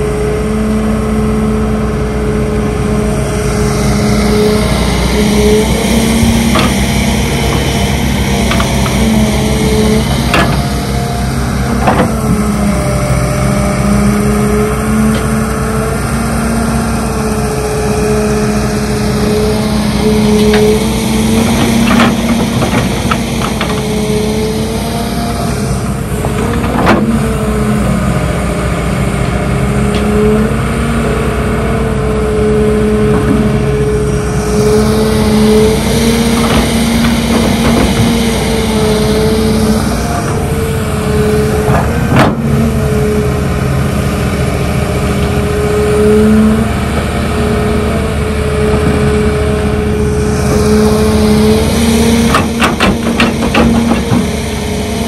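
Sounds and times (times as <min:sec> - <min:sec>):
excavator diesel engine revving: 0:00.0 - 0:55.0
metal clanks and knocks: 0:06.1 - 0:09.4, 0:10.0 - 0:10.8, 0:11.7 - 0:12.4, 0:21.3 - 0:24.1, 0:26.2 - 0:27.4, 0:36.2 - 0:38.5, 0:52.2 - 0:54.4.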